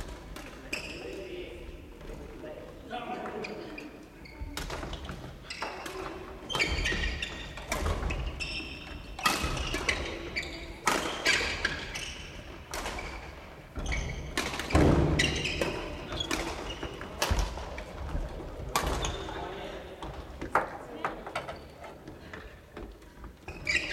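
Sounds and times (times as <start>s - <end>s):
badminton rackets hitting shuttlecocks: 5.6s - 18.0s.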